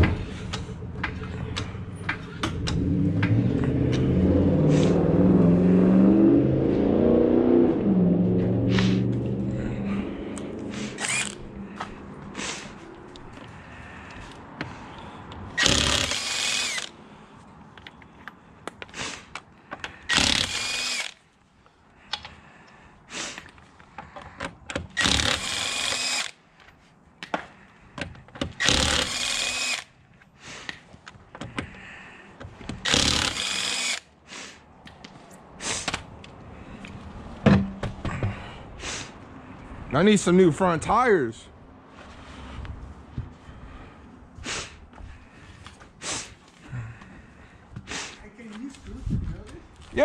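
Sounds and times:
impact wrench zipping: 0:10.6 - 0:11.5, 0:15.5 - 0:16.9, 0:20.1 - 0:21.2, 0:24.8 - 0:26.4, 0:28.4 - 0:29.9, 0:32.7 - 0:34.1.

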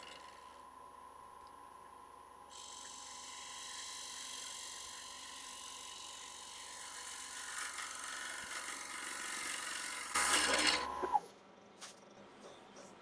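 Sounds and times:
lathe motor whine: 0:02.5 - 0:11.2
gouge cutting wood: 0:02.6 - 0:11.2.

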